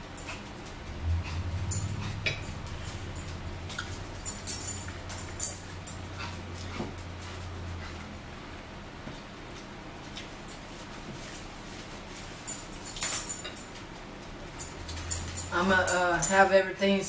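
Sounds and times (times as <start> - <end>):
low steady hum: 0.0 - 17.0
forks clinking on plates: 12.4 - 13.8.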